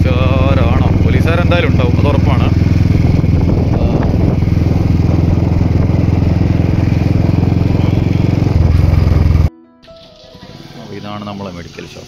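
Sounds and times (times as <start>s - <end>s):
motorbike engine cruising: 0.0s - 9.5s.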